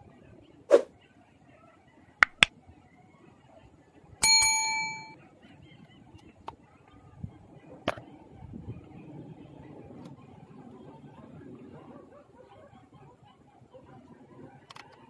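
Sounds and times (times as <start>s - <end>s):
notification bell ding: 4.2s - 5.2s.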